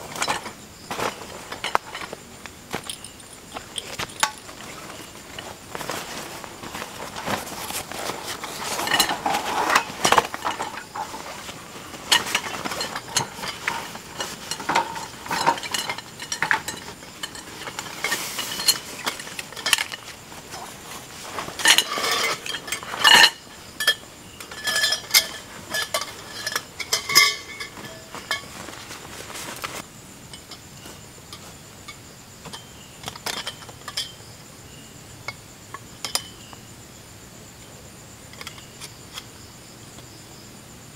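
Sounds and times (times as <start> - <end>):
nylon bags rustling: 0.0 - 29.9
metallic clicks and clinks: 1.5 - 5.5, 12.0 - 20.2, 21.6 - 28.8.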